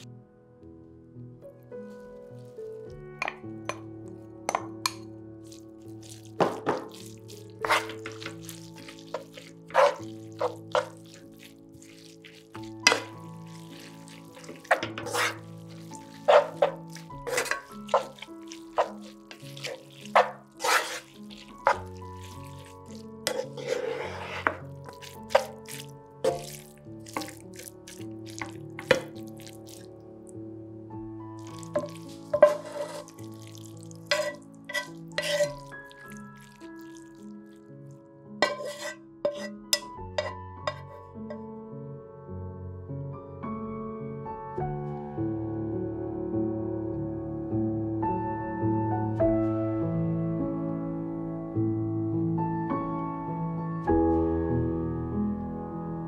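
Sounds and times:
soft background music: 0.0 - 56.0
spatula scraping and knocking pan: 4.5 - 29.8, 31.4 - 36.5, 38.4 - 41.4.

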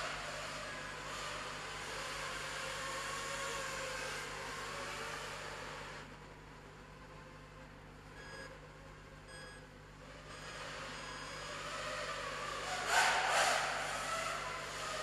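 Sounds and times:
quadcopter motors whining: 0.0 - 6.1, 10.2 - 15.0
short electronic beeps: 8.2 - 8.5, 9.3 - 9.7, 10.3 - 11.5.

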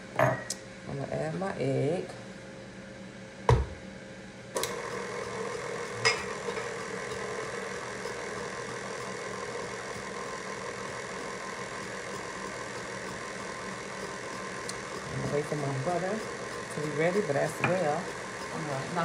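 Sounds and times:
stand mixer motor humming: 4.6 - 19.0.

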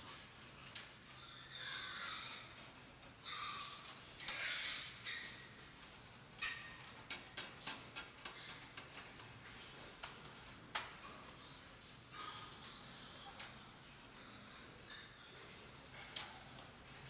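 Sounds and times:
pigs squealing: 1.2 - 2.6, 3.2 - 5.5.

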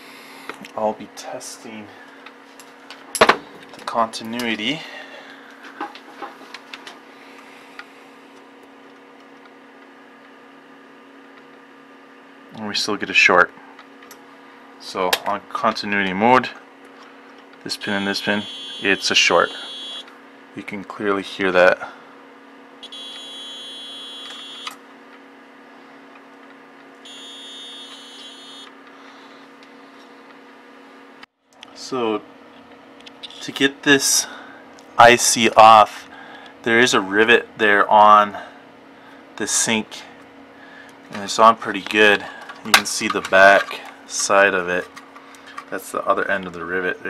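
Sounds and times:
steady low hum: 0.0 - 47.0
multimeter continuity buzzer: 17.8 - 20.2, 22.8 - 24.8, 27.0 - 28.8.

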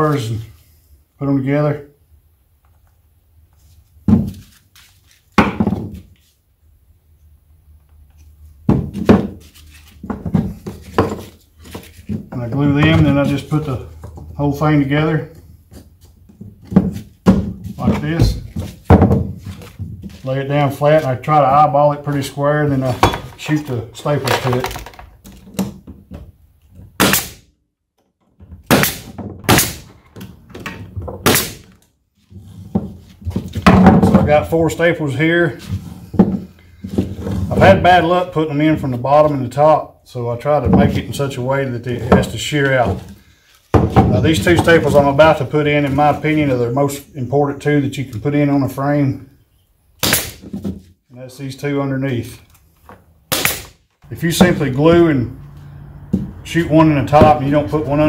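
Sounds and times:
pneumatic stapler firing: 28.7 - 30.0, 31.2 - 31.7, 50.0 - 50.4, 53.3 - 53.8.

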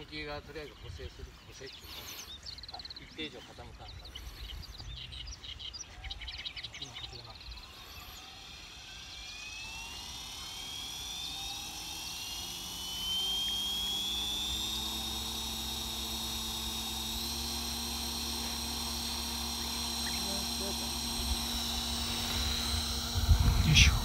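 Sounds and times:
model helicopter motor whine: 0.0 - 24.0.

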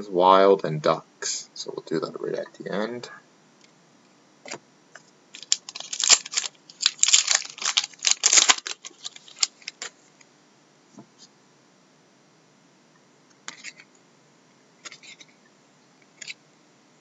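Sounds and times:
cards clicking and rustling: 5.4 - 9.9.

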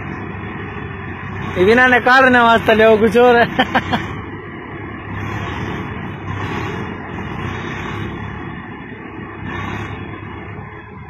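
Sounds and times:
diesel tractor engine under load: 0.0 - 11.0.

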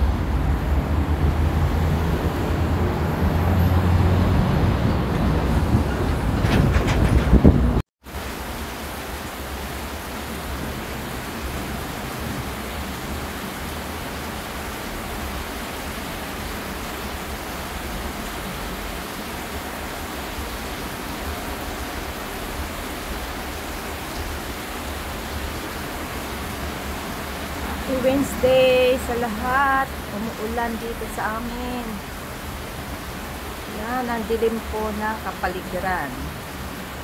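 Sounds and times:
steady rain falling: 8.0 - 37.0.

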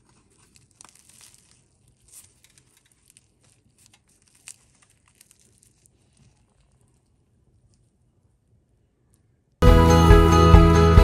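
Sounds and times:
puff pastry crackling and tearing: 0.0 - 8.0.

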